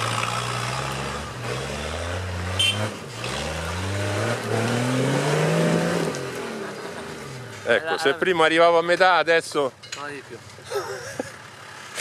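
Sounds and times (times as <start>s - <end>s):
off-road vehicle engine revving: 0.0s - 9.5s.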